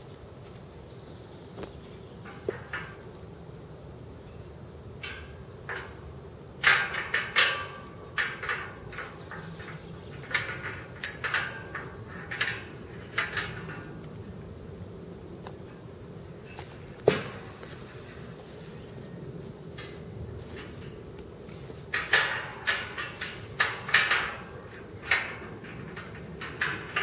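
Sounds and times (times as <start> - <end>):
leather boot creaking on metal gate: 1.6 - 3.6, 4.3 - 14.6, 15.4 - 27.0.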